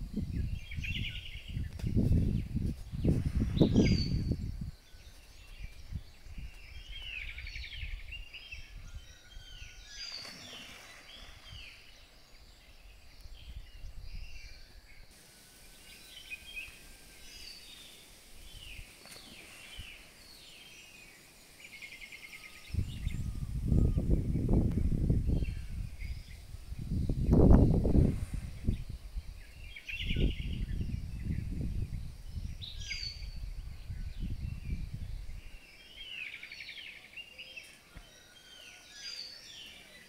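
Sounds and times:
birds whistling: 0:03.0 - 0:24.6.

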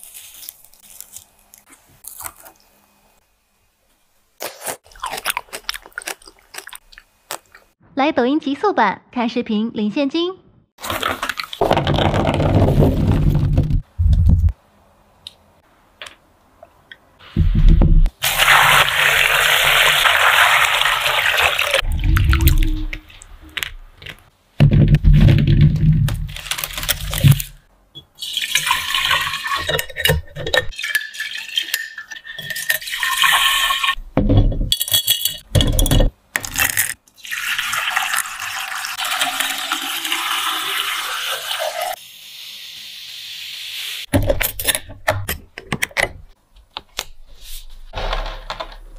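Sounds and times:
plums tumbling into basket: 0:10.9 - 0:14.5
liquid pouring into glass jars: 0:30.8 - 0:34.0, 0:37.2 - 0:41.8.

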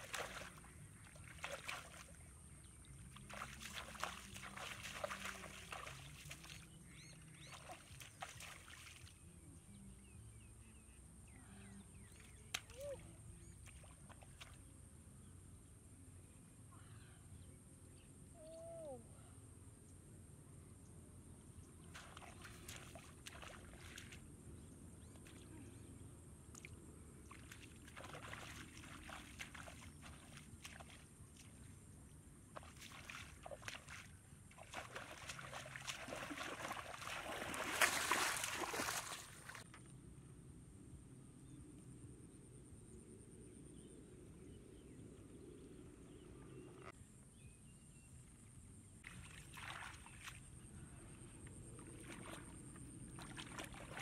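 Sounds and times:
bare feet wading through water: 0:00.0 - 0:10.0, 0:21.8 - 0:39.8, 0:49.0 - 0:54.0.

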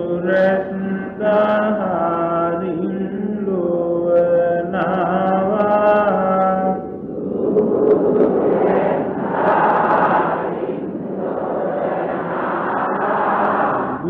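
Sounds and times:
slow melodic chanting: 0:00.0 - 0:14.0
steady low drone: 0:03.8 - 0:14.0.

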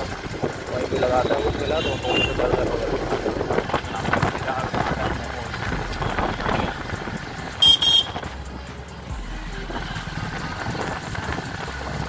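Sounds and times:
motorcycle engine: 0:00.0 - 0:12.0
high-pitched horn beeps: 0:07.6 - 0:08.2.

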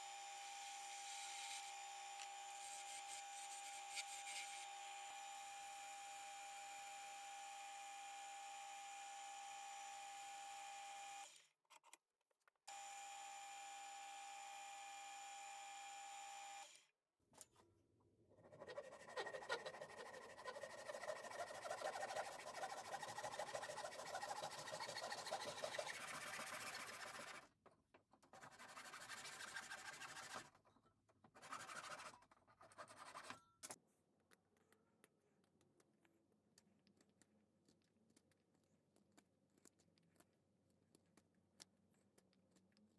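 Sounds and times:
sanding wooden handle: 0:18.4 - 0:27.4, 0:28.3 - 0:30.5, 0:31.4 - 0:33.3
hand saw cutting wood: 0:18.5 - 0:27.5, 0:28.4 - 0:30.5, 0:31.4 - 0:33.4.

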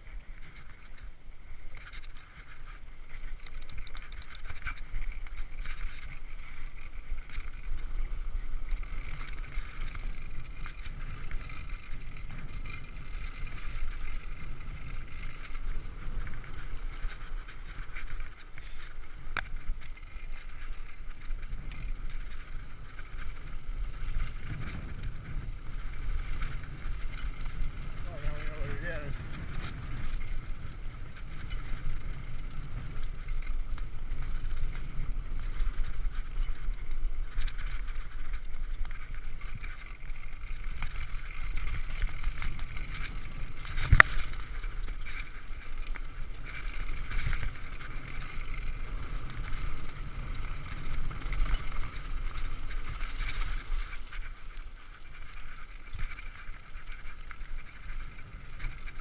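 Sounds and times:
bike rattling over dirt: 0:00.0 - 0:59.0
wind rumble on microphone: 0:00.0 - 0:59.0.

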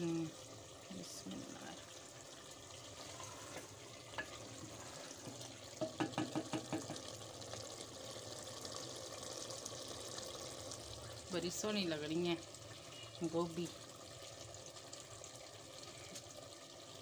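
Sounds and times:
simmering pot hiss: 0:00.0 - 0:17.0
spoon knocking on pot: 0:05.8 - 0:07.1.

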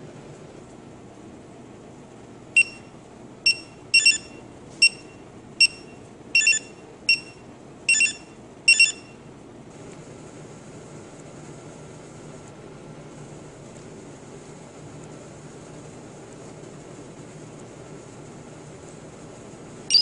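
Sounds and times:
barcode scanner beeping: 0:02.6 - 0:02.9, 0:03.5 - 0:09.1.

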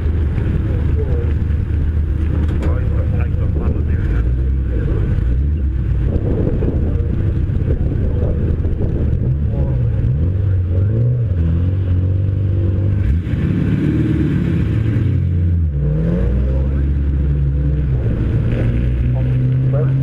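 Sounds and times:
microphone noise: 0:00.0 - 0:12.0
race car engine revving: 0:00.0 - 0:20.0.

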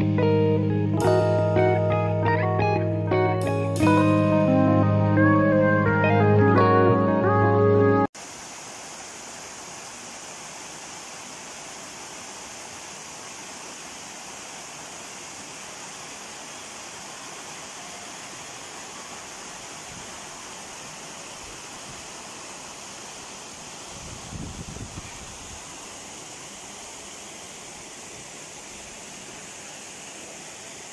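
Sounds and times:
small waterfall rushing: 0:08.2 - 0:30.9.

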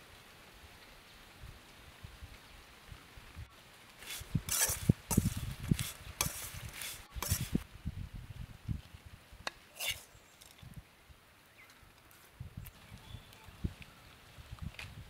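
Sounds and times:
metal spoon scraping wok: 0:04.0 - 0:07.6, 0:09.7 - 0:10.1.

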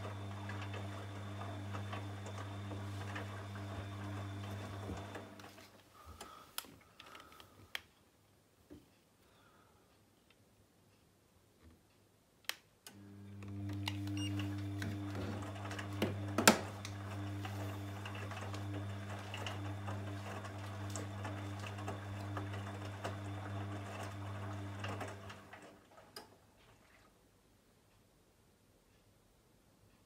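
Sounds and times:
washing machine drum motor hum: 0:00.0 - 0:06.3, 0:12.9 - 0:27.0.

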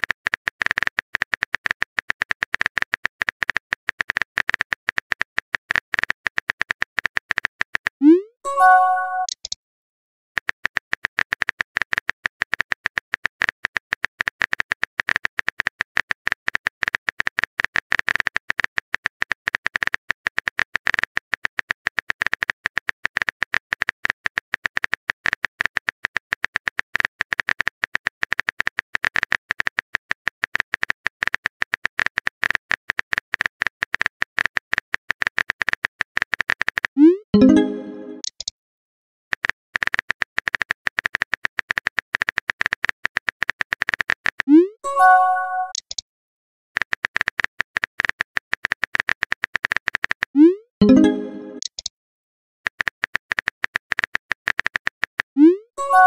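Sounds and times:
keyboard typing clicks: 0:00.0 - 0:09.6, 0:30.5 - 0:38.5, 0:39.4 - 0:46.0, 0:46.8 - 0:51.9
rising message sent tone: 0:08.0 - 0:09.3, 0:37.0 - 0:38.2, 0:44.6 - 0:45.8, 0:50.8 - 0:51.6.

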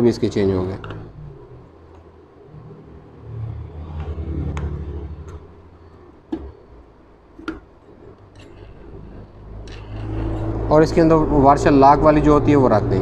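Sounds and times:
vehicle engine rumbling by: 0:00.0 - 0:06.6, 0:08.4 - 0:13.0.

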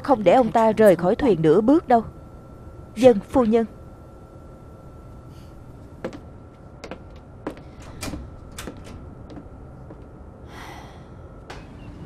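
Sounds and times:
hard-soled footsteps on floor: 0:06.0 - 0:10.1.

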